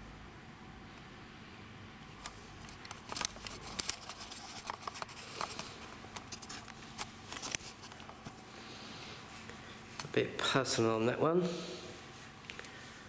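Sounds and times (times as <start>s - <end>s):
camera handling rustles and clicks: 2.2s - 8.4s.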